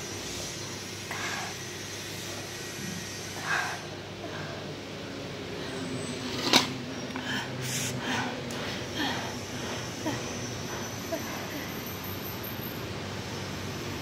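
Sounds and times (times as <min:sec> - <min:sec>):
person breathing hard through mouth: 0:03.2 - 0:04.8, 0:07.1 - 0:11.0.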